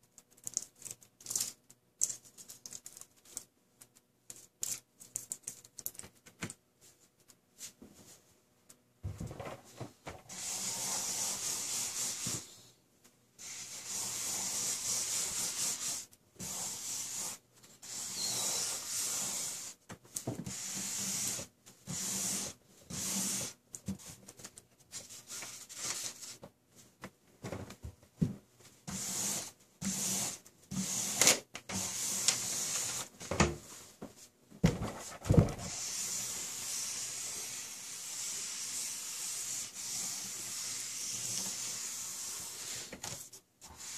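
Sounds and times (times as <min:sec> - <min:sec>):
markers scribbling on paper: 0:10.3 - 0:12.4, 0:13.4 - 0:19.7, 0:35.7 - 0:42.9.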